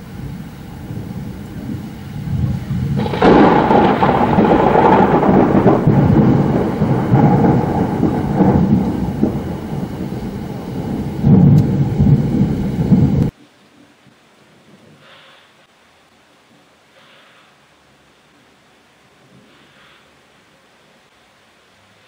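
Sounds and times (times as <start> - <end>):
loud rumbling thunder: 0.0 - 13.3.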